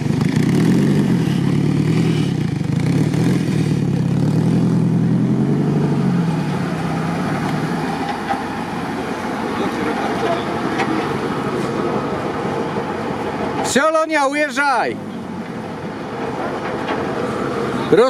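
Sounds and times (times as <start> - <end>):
off-road engine revving hard: 0.0 - 11.8.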